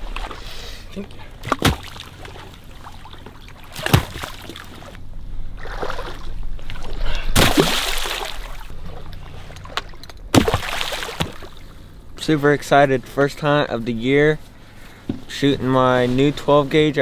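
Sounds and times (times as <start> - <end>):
water sloshing and splashing: 0.0 - 12.0.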